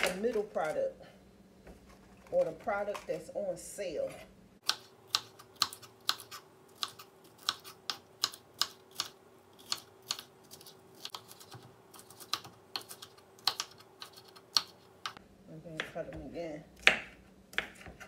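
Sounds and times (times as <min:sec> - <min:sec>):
knife chopping on wooden board: 0:16.8 - 0:18.0.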